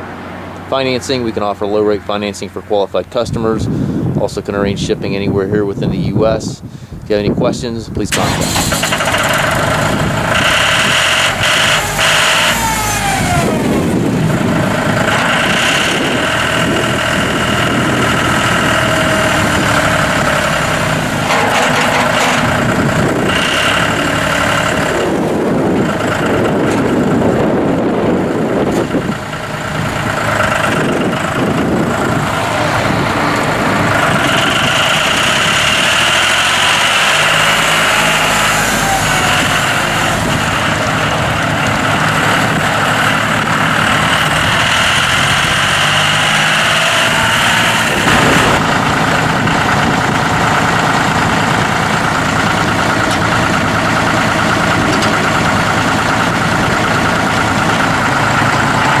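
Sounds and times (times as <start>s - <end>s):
tractor diesel engine running: 0.0s - 59.0s
high whine: 8.2s - 51.6s.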